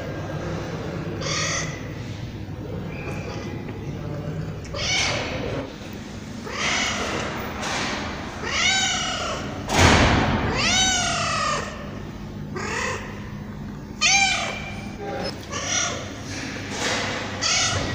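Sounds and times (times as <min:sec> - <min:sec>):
cat meowing: 0:08.4 - 0:09.5, 0:10.5 - 0:11.8, 0:14.0 - 0:16.1, 0:17.4 - 0:17.9.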